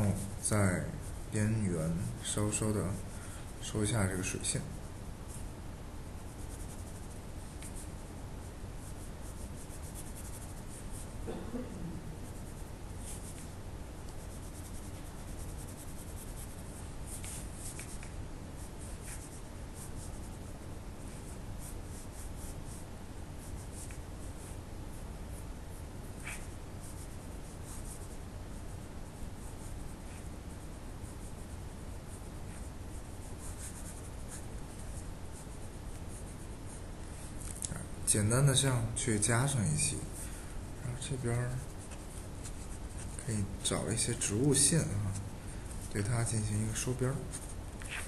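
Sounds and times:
faint low hum: 0:00.0 - 0:48.0
pen scratching on paper: 0:06.2 - 0:07.9, 0:08.8 - 0:11.2, 0:12.2 - 0:13.5, 0:14.2 - 0:18.1, 0:18.8 - 0:22.8, 0:26.1 - 0:28.8, 0:32.4 - 0:36.4.

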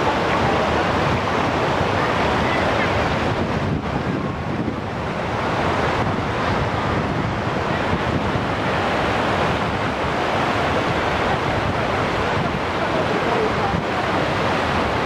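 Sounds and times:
water pouring over a causeway: 0:00.0 - 0:15.0
wind buffeting the microphone: 0:00.0 - 0:15.0.

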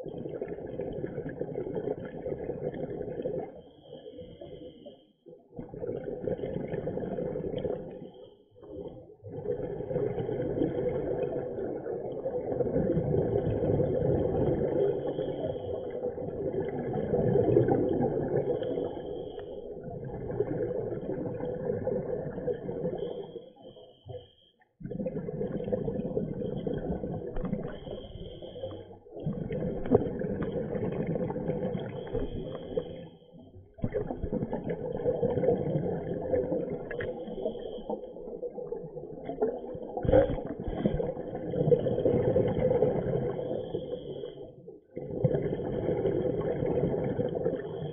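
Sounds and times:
exhaled bubbles rushing underwater: 0:00.0 - 0:47.9
scuba regulator breathing: 0:15.0 - 0:16.0, 0:18.5 - 0:19.7, 0:27.7 - 0:29.0, 0:31.8 - 0:33.3, 0:36.9 - 0:38.2, 0:43.2 - 0:44.6.

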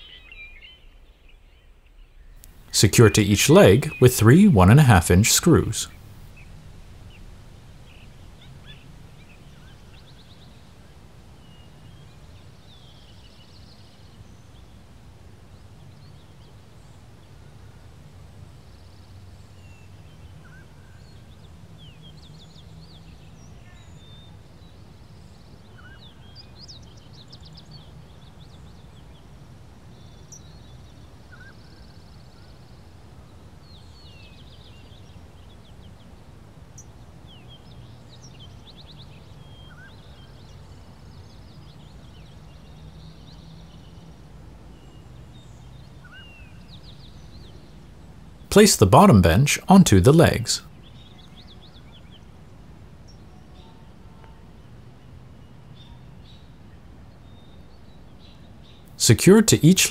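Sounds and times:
steady low hum: 0:02.5 - 0:11.4.

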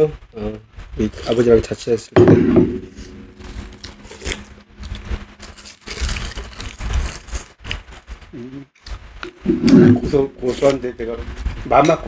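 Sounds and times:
soft eating noises: 0:03.6 - 0:12.0.

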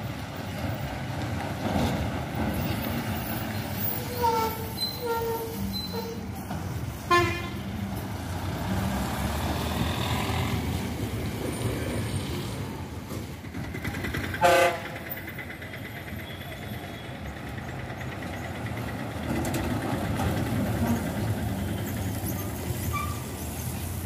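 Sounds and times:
bus engine running: 0:00.0 - 0:24.0
bus horn blasts: 0:04.0 - 0:06.4, 0:07.1 - 0:07.8, 0:14.4 - 0:15.0.

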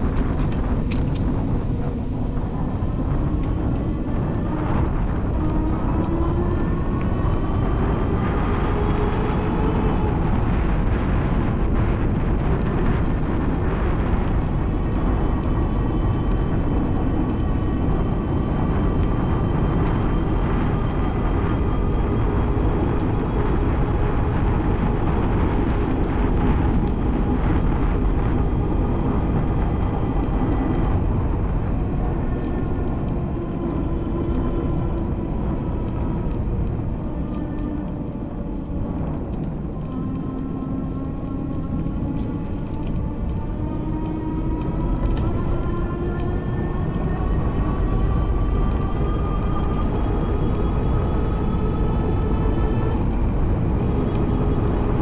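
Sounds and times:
faint whine: 0:00.0 - 0:55.0
wind on microphone: 0:00.0 - 0:55.0.

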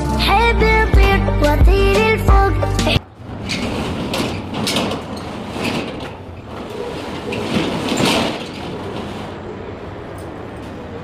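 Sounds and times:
metal roller shutter rattling: 0:03.1 - 0:09.5.

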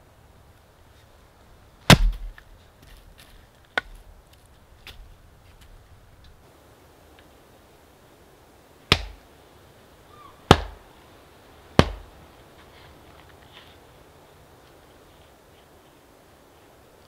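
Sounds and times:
hatchet chopping firewood: 0:01.9 - 0:03.0, 0:03.7 - 0:04.0, 0:08.9 - 0:09.2, 0:10.5 - 0:10.8, 0:11.8 - 0:12.1.

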